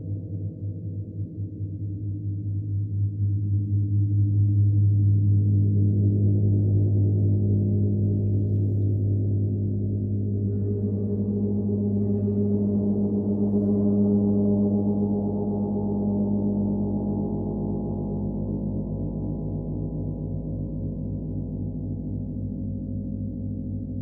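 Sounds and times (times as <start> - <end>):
gong ringing: 10.2 - 17.0.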